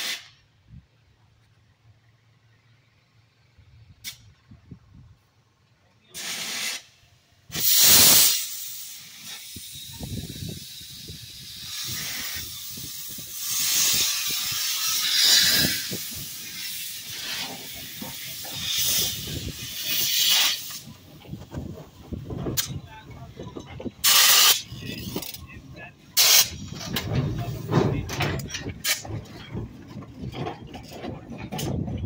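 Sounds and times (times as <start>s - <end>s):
steam hissing blasts: 0.0s - 0.5s, 6.1s - 22.8s, 23.9s - 25.5s, 26.1s - 28.0s
steam locomotive chuffing: 5.2s - 32.0s.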